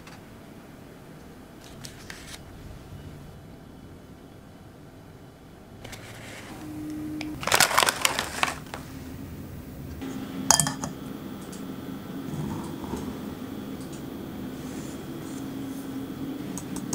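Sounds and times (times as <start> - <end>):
glass bowl clinking on metal sieve: 10.5 - 10.9
kitchenware clattering: 10.5 - 11.0.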